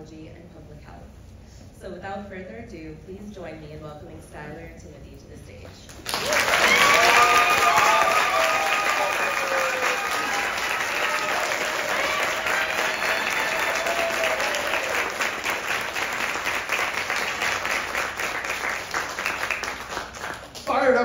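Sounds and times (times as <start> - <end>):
audience applauding: 6.0 - 20.9.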